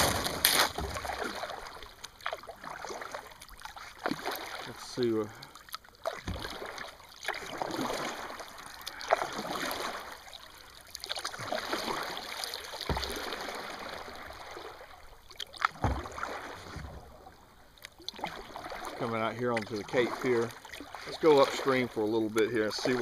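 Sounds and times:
paddle swishing in water: 0.0s - 23.0s.

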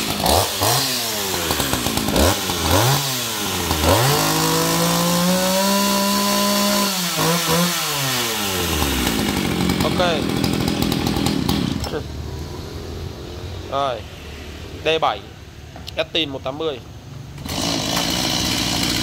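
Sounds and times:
chainsaw engine revving: 0.0s - 12.2s, 17.4s - 19.0s.

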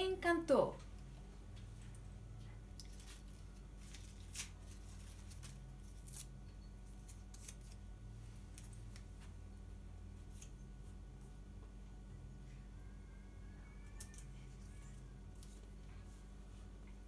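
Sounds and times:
paper rustling: 2.9s - 6.3s.

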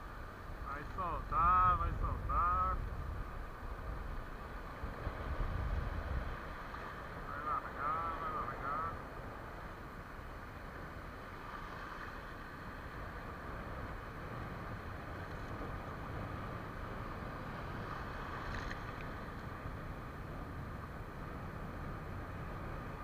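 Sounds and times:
wind on microphone: 0.0s - 9.0s
sea surf: 0.0s - 23.0s.

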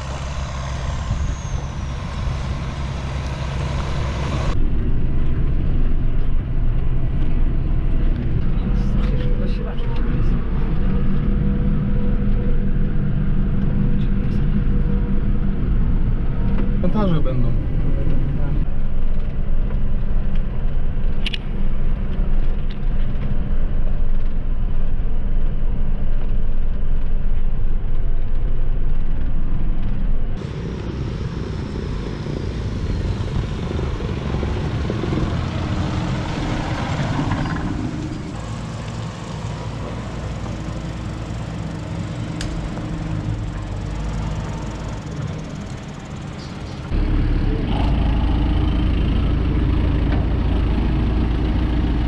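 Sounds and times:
tractor driving past: 0.0s - 18.6s, 30.4s - 52.0s
tractor diesel engine running: 0.0s - 18.9s, 30.4s - 52.0s
deep engine rumble: 0.0s - 52.0s.

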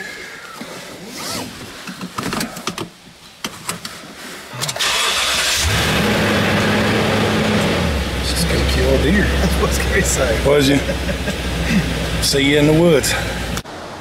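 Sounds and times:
seat belt: 0.6s - 4.0s
truck engine starting and idling: 4.6s - 13.6s.

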